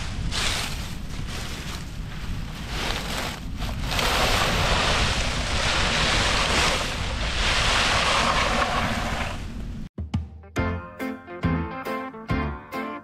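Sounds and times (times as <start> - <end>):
dry leaves rustling: 0.0 - 8.9
wind on microphone: 0.0 - 9.9.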